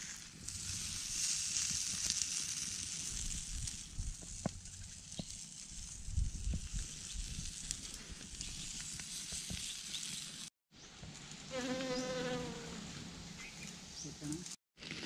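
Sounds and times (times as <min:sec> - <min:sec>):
wood fire hissing and crackling: 0:00.0 - 0:10.5
bee buzzing: 0:11.5 - 0:12.9.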